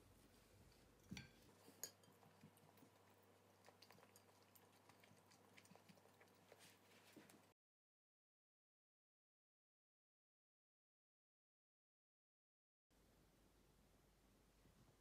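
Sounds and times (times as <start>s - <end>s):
soft chewing: 0.0s - 7.6s.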